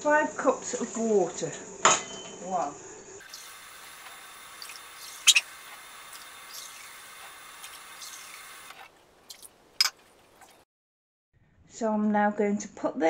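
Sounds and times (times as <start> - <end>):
water running: 3.2 - 10.6.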